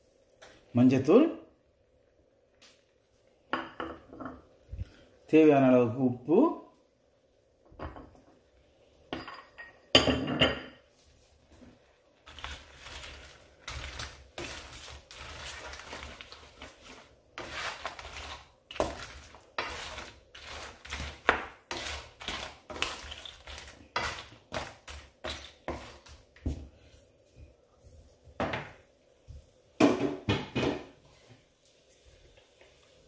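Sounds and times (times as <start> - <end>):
metal spoon stirring in a pot: 12.2 - 26.2.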